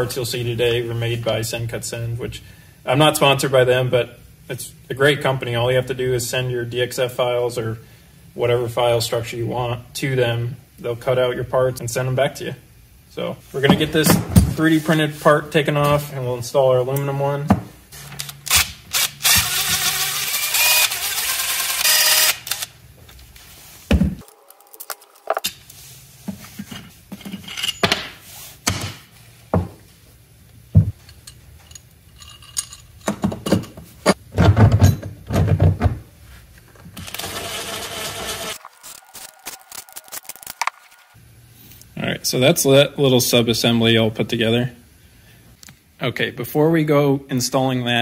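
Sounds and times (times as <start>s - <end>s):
impact driver running: 18.5s - 22.7s, 37.0s - 41.0s
metal screws clinking: 31.0s - 33.8s.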